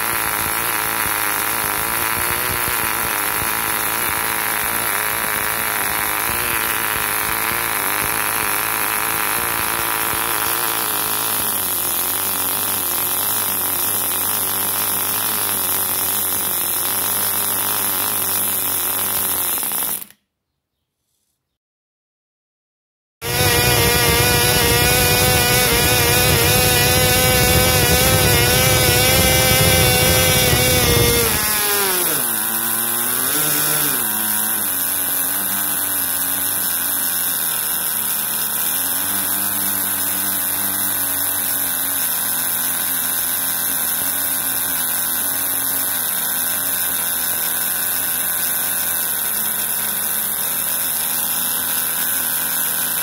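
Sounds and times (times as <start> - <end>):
model engine running: 0.0 - 20.2, 23.2 - 53.0.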